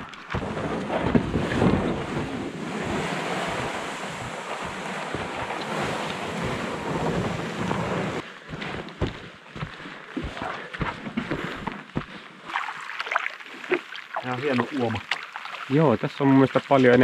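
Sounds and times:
canoe hull scraping over heather: 0:00.3 - 0:09.3.

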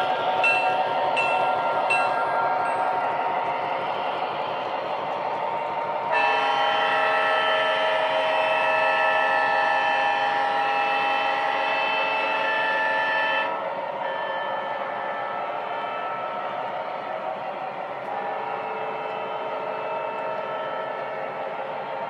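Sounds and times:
model train running noise: 0:00.0 - 0:22.0
model train air horn blast: 0:06.1 - 0:16.3.

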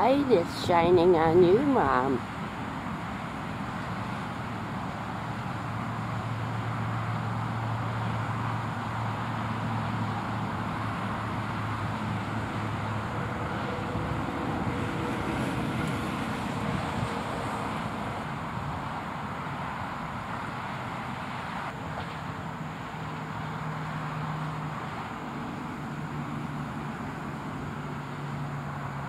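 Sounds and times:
low engine hum: 0:00.0 - 0:29.0
road traffic noise: 0:00.0 - 0:29.0.

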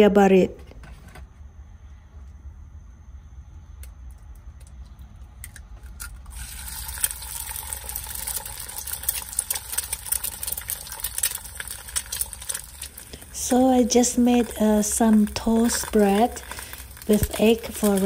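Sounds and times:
egg frying sizzle: 0:05.9 - 0:18.0.

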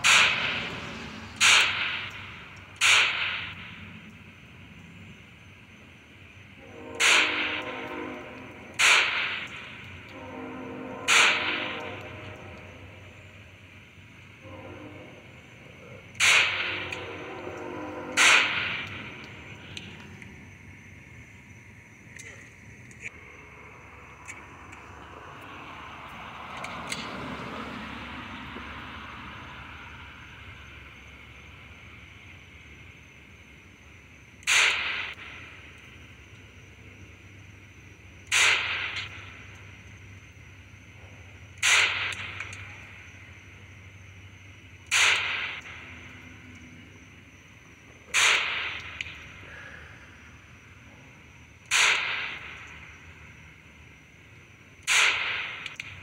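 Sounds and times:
pistol shot: 0:00.0 - 0:00.7, 0:01.4 - 0:03.8, 0:08.7 - 0:09.8, 0:11.1 - 0:11.8, 0:16.2 - 0:17.1, 0:18.2 - 0:19.0, 0:34.4 - 0:35.4, 0:38.3 - 0:39.3, 0:41.6 - 0:42.7, 0:44.9 - 0:45.8, 0:48.1 - 0:49.2, 0:51.7 - 0:52.8, 0:54.8 - 0:56.0
faint steady hiss: 0:00.0 - 0:56.0.

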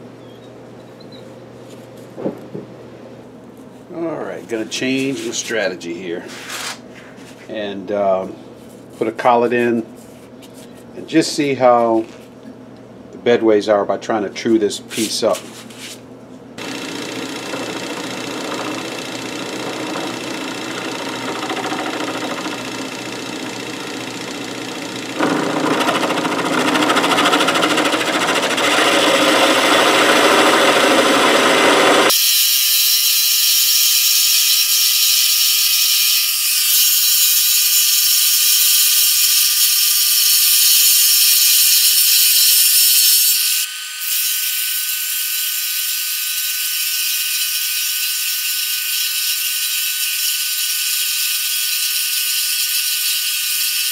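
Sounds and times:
steady high whine: 0:16.6 - 0:32.1
lathe turning steel: 0:16.6 - 0:32.3.

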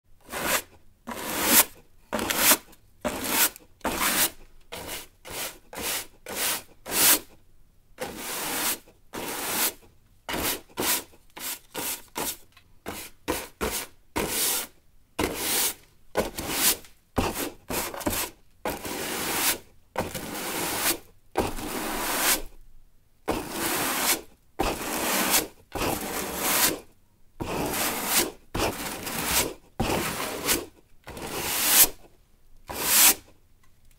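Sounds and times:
broom sweeping strokes: 0:27.5 - 0:32.0.

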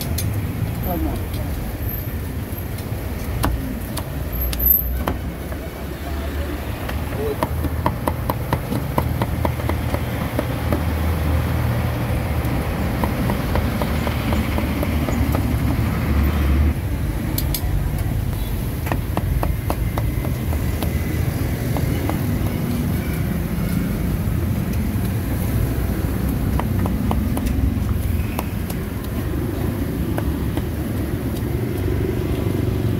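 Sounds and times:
passing traffic rumble: 0:00.0 - 0:32.9
cleaver chopping on wooden block: 0:03.2 - 0:04.2, 0:06.8 - 0:11.1, 0:12.4 - 0:15.8, 0:18.8 - 0:22.9, 0:26.1 - 0:32.0.

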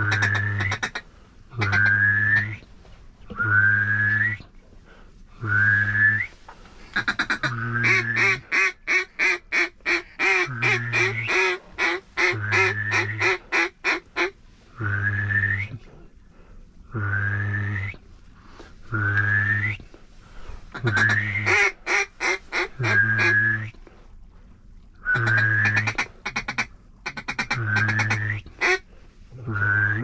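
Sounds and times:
duck quacking: 0:00.0 - 0:01.0, 0:01.6 - 0:02.0, 0:07.0 - 0:14.4, 0:20.8 - 0:23.4, 0:25.2 - 0:28.8
duck whistling calls: 0:00.0 - 0:01.0, 0:01.6 - 0:02.6, 0:06.9 - 0:15.7, 0:20.8 - 0:23.8, 0:25.0 - 0:28.8.

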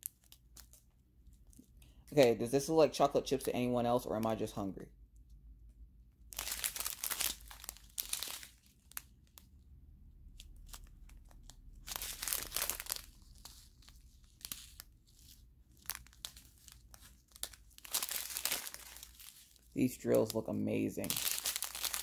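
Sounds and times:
plastic bags crinkling: 0:00.0 - 0:01.7, 0:06.3 - 0:09.5, 0:10.2 - 0:22.0.

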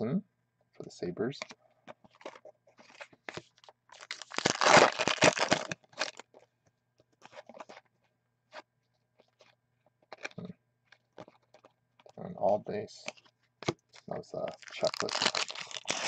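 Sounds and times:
foil wrapper crinkling: 0:02.1 - 0:06.5, 0:09.2 - 0:10.4, 0:11.2 - 0:12.2, 0:14.0 - 0:16.0.

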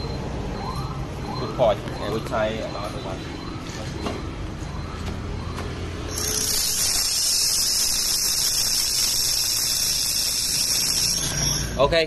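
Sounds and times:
laser welder hissing: 0:06.1 - 0:11.8.

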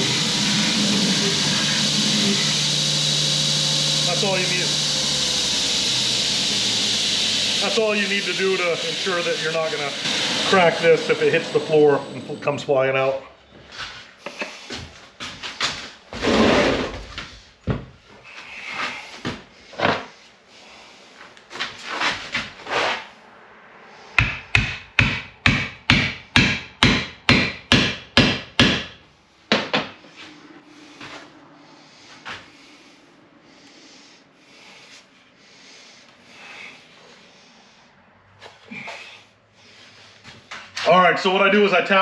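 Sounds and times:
sledgehammer striking wooden handle: 0:24.2 - 0:29.9.

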